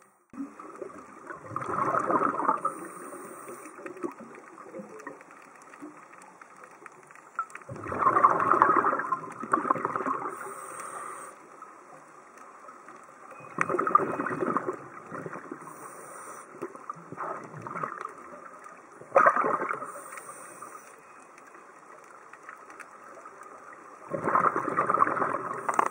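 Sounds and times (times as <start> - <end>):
exhaled bubbles underwater: 0.4 - 6.0, 7.4 - 11.3, 13.3 - 20.8, 23.1 - 25.9
faint high hiss: 2.0 - 7.7, 8.6 - 19.0, 19.6 - 24.1.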